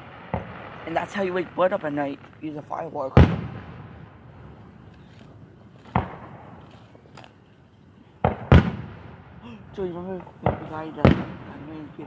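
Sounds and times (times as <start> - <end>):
fireworks booming: 0.0 - 7.0, 8.1 - 12.0.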